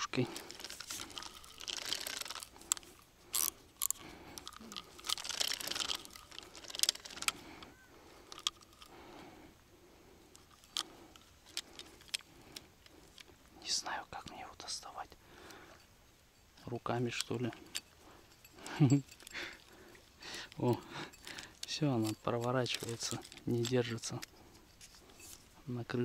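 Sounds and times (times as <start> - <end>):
fishing reel clicking and rattling: 0.0 - 9.1, 10.3 - 13.3, 17.0 - 25.4.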